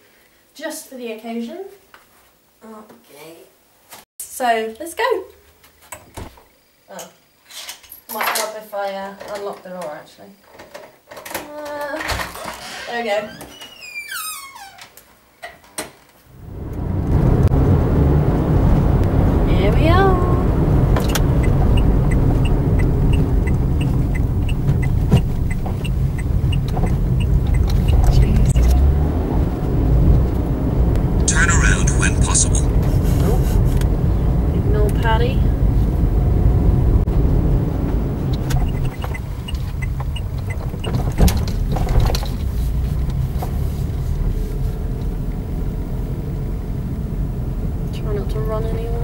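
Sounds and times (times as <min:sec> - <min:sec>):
car engine and road rumble: 0:16.2 - 0:49.0
turn signal ticking: 0:20.8 - 0:28.8, 0:37.8 - 0:43.2.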